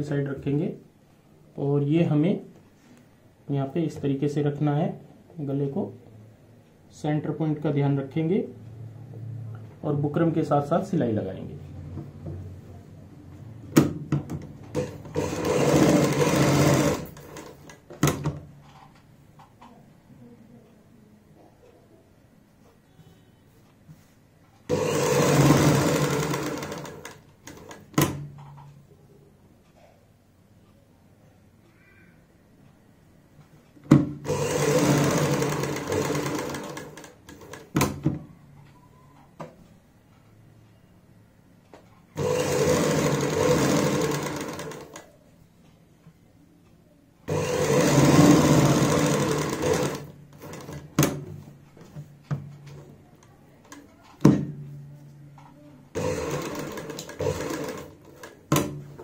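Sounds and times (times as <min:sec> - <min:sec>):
sewing machine stitching: 0:14.7 - 0:18.3, 0:24.7 - 0:28.2, 0:34.2 - 0:37.9, 0:42.2 - 0:45.2, 0:47.3 - 0:51.3, 0:55.9 - 0:59.0
sewing machine knocks: 0:47.3 - 0:51.3.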